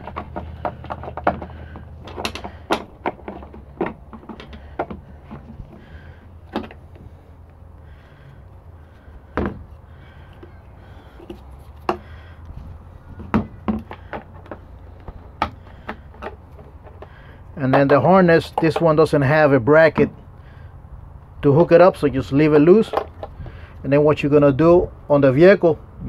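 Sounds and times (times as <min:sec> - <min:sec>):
steady low hum: 0:00.0 - 0:17.7.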